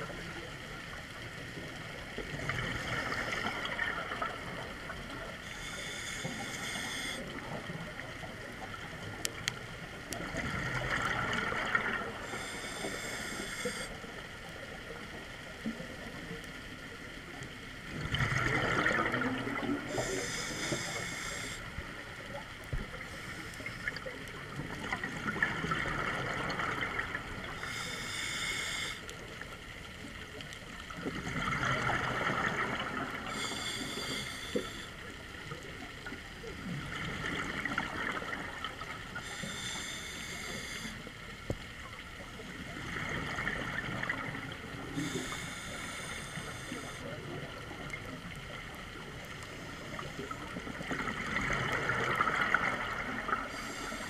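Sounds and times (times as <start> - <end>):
exhaled bubbles underwater: 0.0 - 5.4, 7.1 - 13.0, 14.6 - 27.9, 30.8 - 34.8, 35.4 - 39.7, 41.4 - 54.0
scuba regulator inhale hiss: 5.4 - 7.6, 12.2 - 14.0, 19.8 - 22.0, 23.0 - 23.9, 27.5 - 29.2, 33.3 - 35.0, 39.1 - 41.2, 44.9 - 47.2, 53.4 - 54.0.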